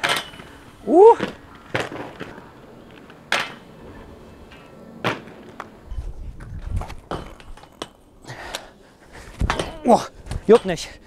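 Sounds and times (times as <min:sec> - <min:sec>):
skate wheels clicking and tapping: 0:00.0 - 0:10.8
wind rumble on microphone: 0:05.8 - 0:07.6, 0:09.2 - 0:10.5.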